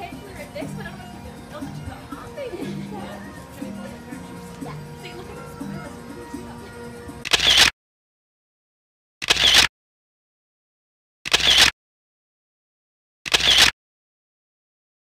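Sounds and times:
camera shutter snapping: 0:07.2 - 0:07.7, 0:09.2 - 0:09.7, 0:11.3 - 0:11.7, 0:13.3 - 0:13.7.

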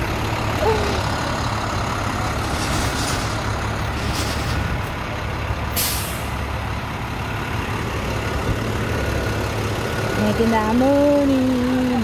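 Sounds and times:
truck engine idling: 0:00.0 - 0:12.0
short sharp hiss: 0:05.8 - 0:06.3.

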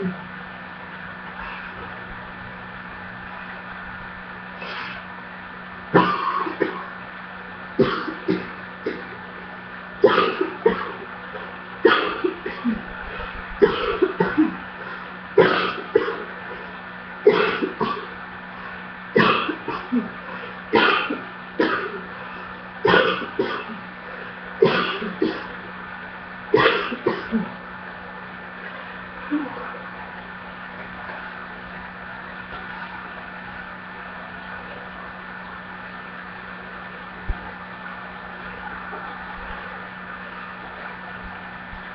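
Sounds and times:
low hum: 0:00.0 - 0:41.9
person coughing hard: 0:06.0 - 0:06.9, 0:07.8 - 0:09.2, 0:10.0 - 0:11.0, 0:11.8 - 0:12.8, 0:13.6 - 0:14.6, 0:15.4 - 0:16.3, 0:17.2 - 0:18.1, 0:19.2 - 0:22.0, 0:22.8 - 0:23.8, 0:24.6 - 0:25.6, 0:26.5 - 0:27.5.

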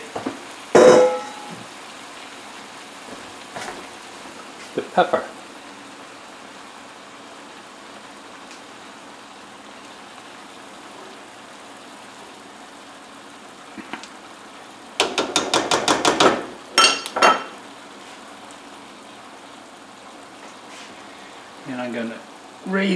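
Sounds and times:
frying pan sizzle: 0:00.0 - 0:22.9
spatula tapping cookware: 0:00.8 - 0:01.4, 0:15.0 - 0:17.5.

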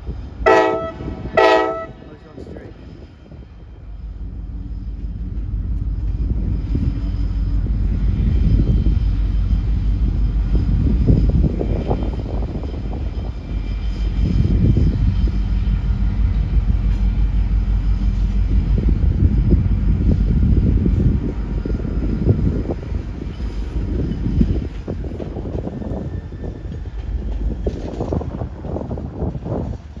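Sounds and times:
diesel locomotive rumbling: 0:00.0 - 0:30.0.

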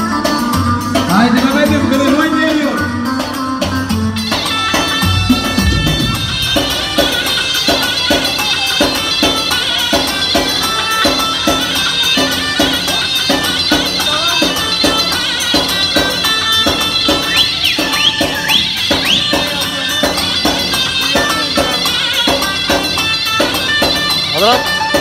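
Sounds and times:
high wavering melody: 0:04.3 - 0:09.8
steady drum beat: 0:04.5 - 0:09.1.

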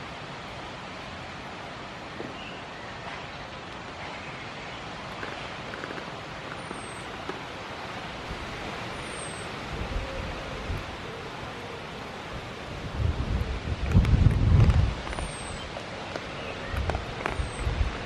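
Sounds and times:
wind: 0:00.0 - 0:18.0
wind buffeting microphone: 0:12.7 - 0:15.8, 0:16.6 - 0:18.0.

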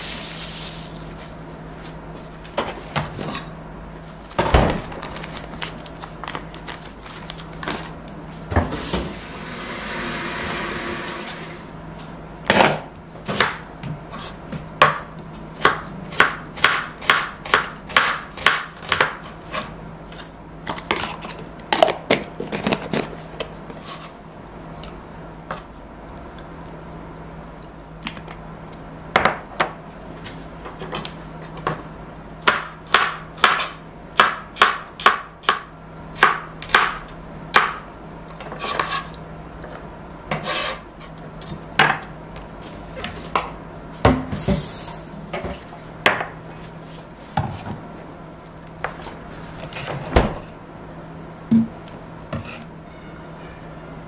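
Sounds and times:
steady low hum: 0:00.0 - 0:54.0
knife chopping on cutting board: 0:12.5 - 0:19.7, 0:32.4 - 0:35.6.

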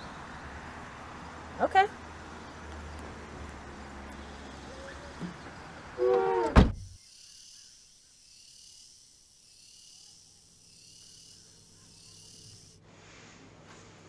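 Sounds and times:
night insects chirring: 0:00.0 - 0:12.8
car trunk slamming shut: 0:06.4 - 0:06.9.

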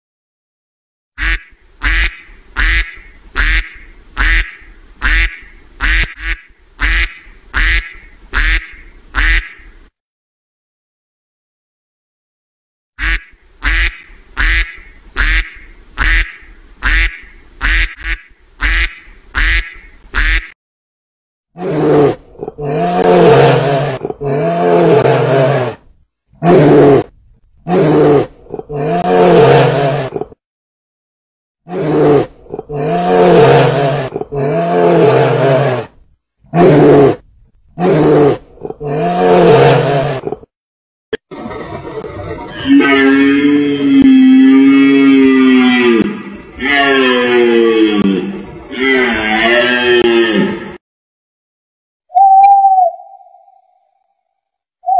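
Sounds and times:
duck quacking: 0:01.2 - 0:09.7, 0:13.0 - 0:20.5.

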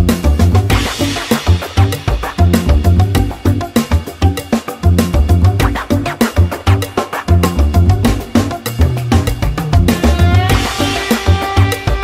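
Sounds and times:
background music with bass and drums: 0:00.0 - 0:12.0.

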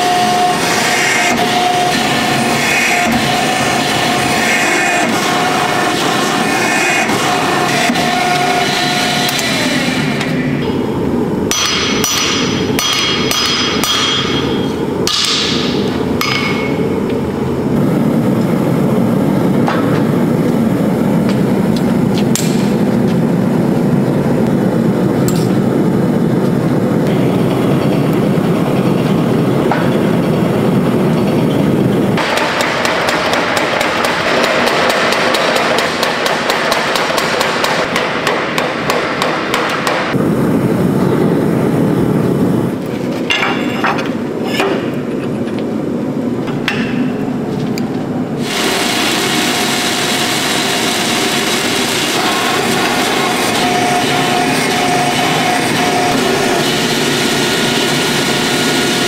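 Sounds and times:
power hammer pounding: 0:11.5 - 0:16.8, 0:32.2 - 0:40.2, 0:48.4 - 0:59.0
hammer striking hot steel: 0:11.5 - 0:17.0, 0:32.2 - 0:40.2.

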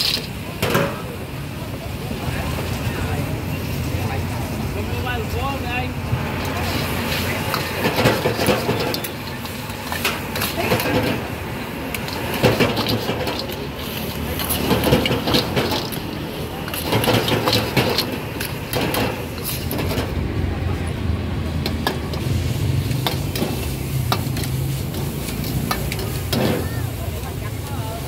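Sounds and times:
metal utensils clicking and scraping: 0:00.0 - 0:01.1, 0:06.4 - 0:20.2, 0:21.6 - 0:27.7
food sizzling: 0:00.0 - 0:20.4, 0:21.0 - 0:28.0.

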